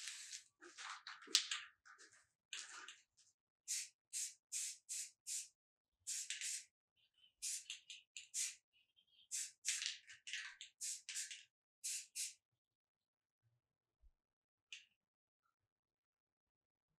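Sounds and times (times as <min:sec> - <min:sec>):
spray paint can hissing: 0:00.0 - 0:00.4, 0:03.7 - 0:05.5, 0:06.1 - 0:06.7, 0:07.4 - 0:08.6, 0:09.3 - 0:12.4.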